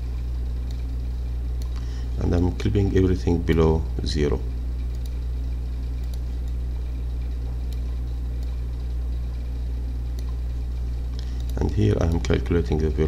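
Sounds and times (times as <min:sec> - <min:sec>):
low electrical hum: 0:00.0 - 0:13.0
computer mouse clicks: 0:00.6 - 0:00.9, 0:04.8 - 0:05.2, 0:05.9 - 0:06.6, 0:07.2 - 0:10.4, 0:11.1 - 0:12.3.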